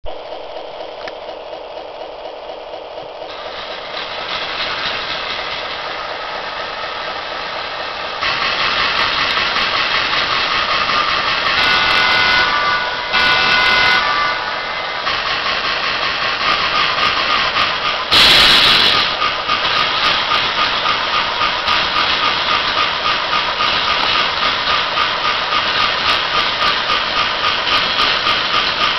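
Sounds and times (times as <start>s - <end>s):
model diesel engine sound: 0.0s - 28.9s
horn-like tones: 11.3s - 15.1s.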